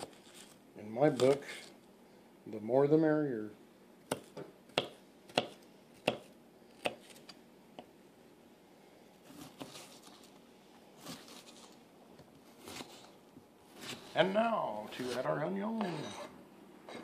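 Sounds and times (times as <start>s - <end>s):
knife cutting through onion: 4.1s - 7.3s, 9.3s - 10.1s, 11.0s - 11.7s, 12.6s - 13.2s.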